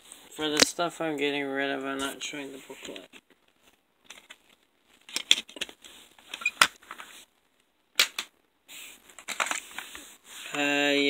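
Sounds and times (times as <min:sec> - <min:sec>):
plastic case clicks and snaps: 0:08.0 - 0:08.3.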